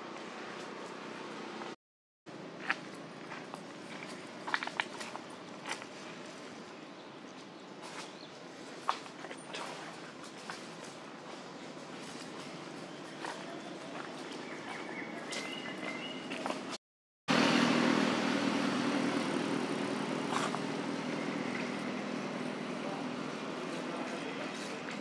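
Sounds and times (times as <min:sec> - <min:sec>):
faint outdoor ambience: 0:00.0 - 0:25.0
vehicle engine hum: 0:10.9 - 0:25.0.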